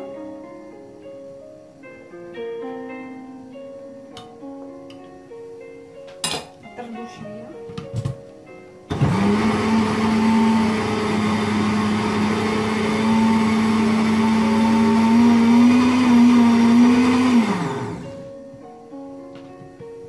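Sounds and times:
blender motor whine: 8.9 - 18.3.

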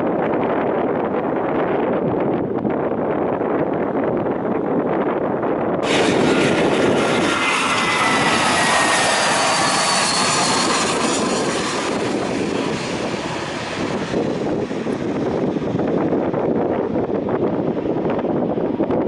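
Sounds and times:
jet rumble: 0.0 - 19.0
jet engine high whine: 5.8 - 19.0.

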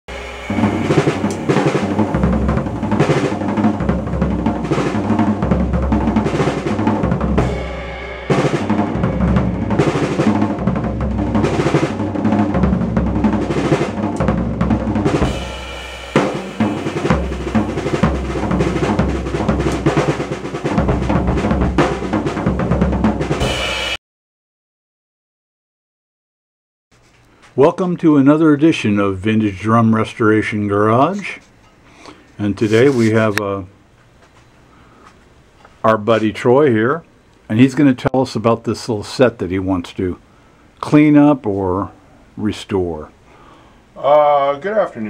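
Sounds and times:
drum kit groove: 0.1 - 24.0, 31.2 - 33.7.

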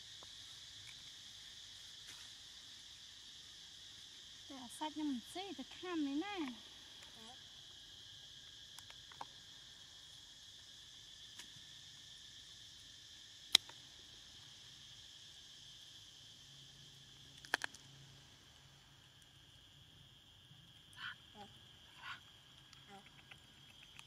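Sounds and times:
high-pitched insect drone: 0.0 - 24.0
sharp clicks: 22.6 - 24.0.

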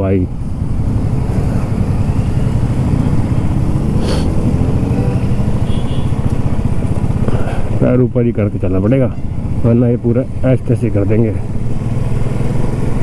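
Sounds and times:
motorcycle engine running: 0.3 - 8.3.

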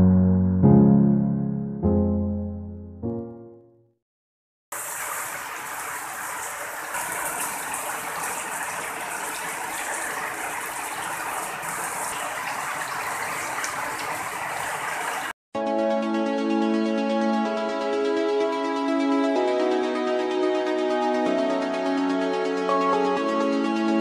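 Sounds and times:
heavy rain pouring onto water: 4.7 - 15.4.

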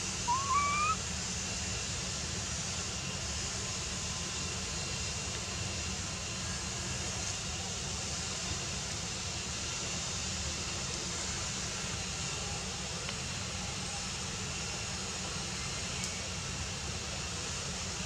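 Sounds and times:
even hiss: 0.0 - 1.0.

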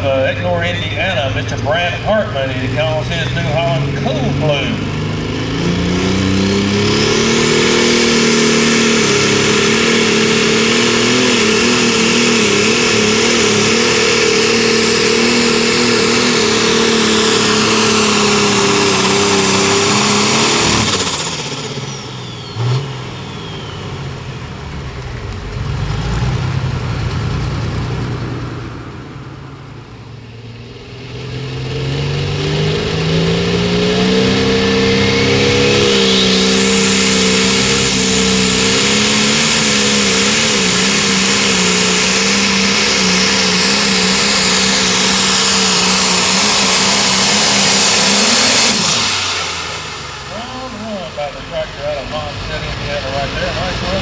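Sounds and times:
second tractor engine revving: 0.0 - 54.0
tractor diesel engine revving: 0.0 - 54.0.

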